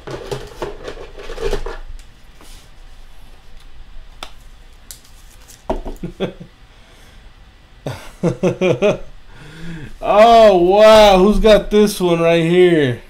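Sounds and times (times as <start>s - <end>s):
man's voice: 10.0s - 13.0s.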